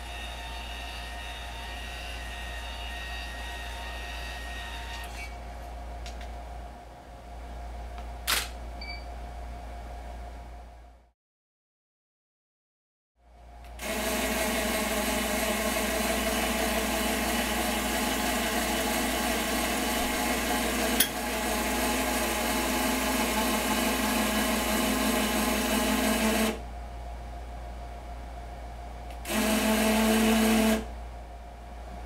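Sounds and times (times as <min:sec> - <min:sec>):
electric motors whining: 0:00.0 - 0:05.4, 0:29.2 - 0:30.9.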